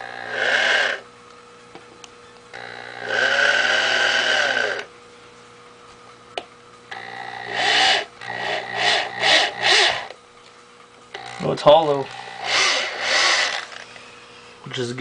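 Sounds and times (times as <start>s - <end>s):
electric drill boring into plastic: 0.0s - 1.0s, 2.5s - 4.9s, 6.9s - 10.2s, 12.1s - 13.9s.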